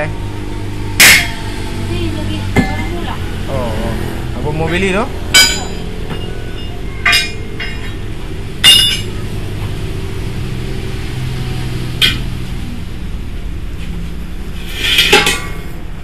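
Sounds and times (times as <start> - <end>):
steady low hum: 0.0 - 16.0
metallic clanks of tire tools: 0.9 - 1.7, 2.5 - 3.1, 4.6 - 9.8, 11.9 - 12.5, 14.6 - 15.8.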